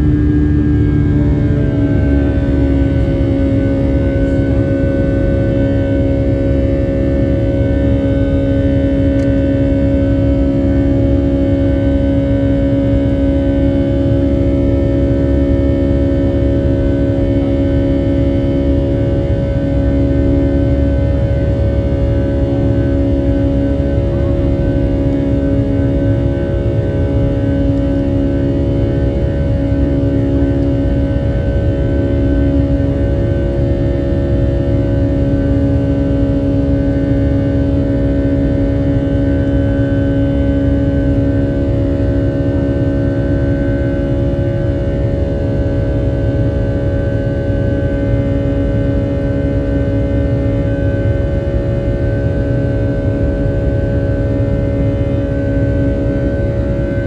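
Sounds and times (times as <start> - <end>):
jet engines droning in cabin: 0.0 - 57.0
steady humming tones: 0.0 - 57.0.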